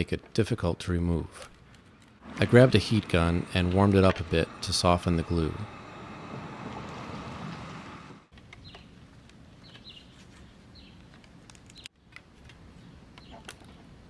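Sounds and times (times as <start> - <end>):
heat gun blowing: 2.2 - 8.3.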